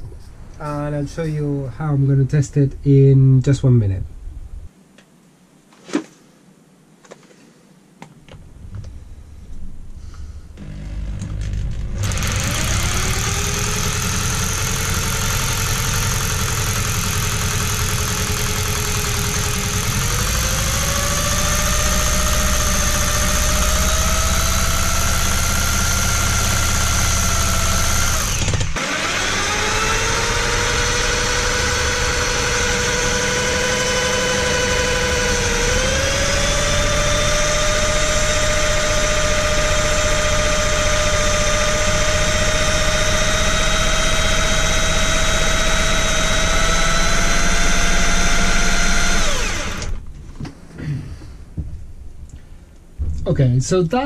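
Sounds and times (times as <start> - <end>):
electric drill motor whine: 10.5 - 50.0.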